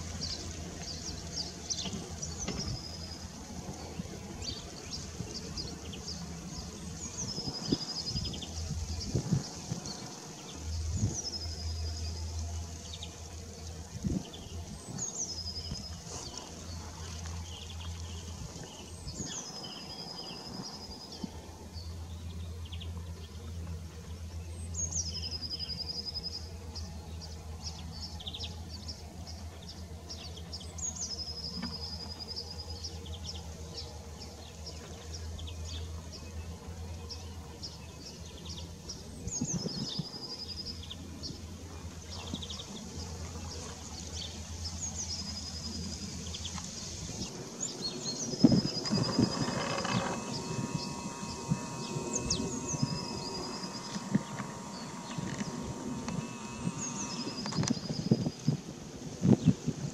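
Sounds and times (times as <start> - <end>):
steady low hum: 0.0 - 59.9
bird calling: 47.6 - 58.6
quick ticking bird notes: 47.7 - 58.5.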